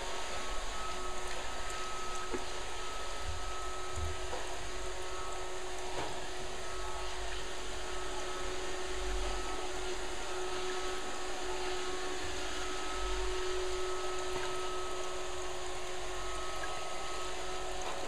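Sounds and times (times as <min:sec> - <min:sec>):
faint high whine: 0:00.0 - 0:18.0
robot vacuum whirring: 0:00.0 - 0:18.0.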